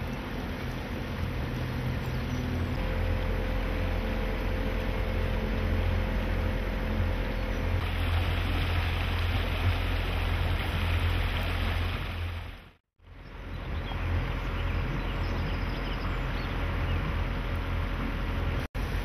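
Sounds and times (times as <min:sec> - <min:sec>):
water rushing: 0:00.0 - 0:12.8
motorboat engine humming: 0:00.0 - 0:19.0
wind: 0:00.0 - 0:19.0.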